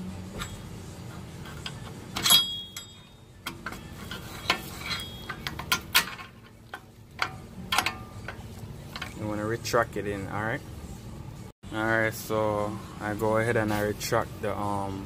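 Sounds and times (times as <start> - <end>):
metallic clink with ring: 1.7 - 5.6.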